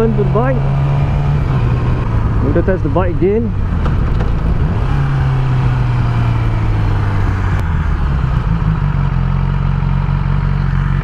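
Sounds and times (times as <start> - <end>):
motorcycle engine running: 0.0 - 11.0
wind noise on microphone: 3.2 - 7.6.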